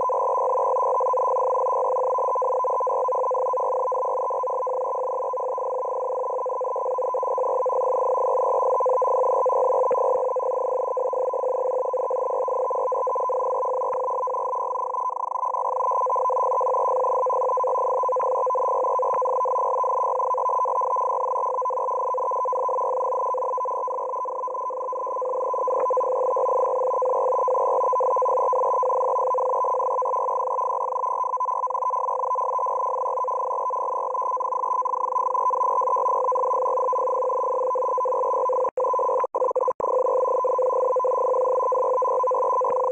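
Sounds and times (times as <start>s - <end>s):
two-tone data signal buzz: 0.0s - 42.9s
faint static clicks: 25.7s - 26.1s.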